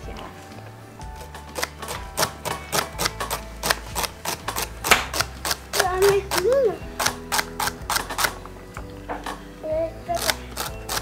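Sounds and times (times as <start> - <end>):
knife chopping on cutting board: 1.6 - 6.4.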